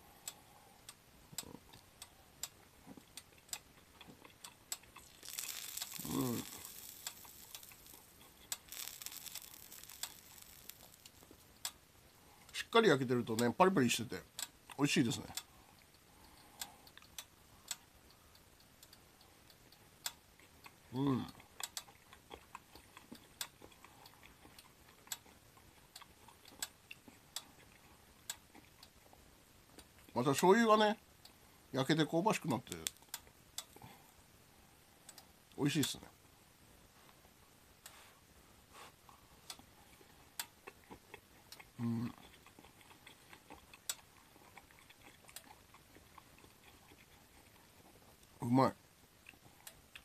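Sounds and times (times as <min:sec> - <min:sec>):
faint chewing: 0:00.2 - 0:12.6, 0:18.9 - 0:30.2, 0:38.7 - 0:48.4, 0:49.1 - 0:50.0
soft mouth clicks: 0:03.0 - 0:11.7
dumplings crackling on a griddle: 0:04.4 - 0:11.8.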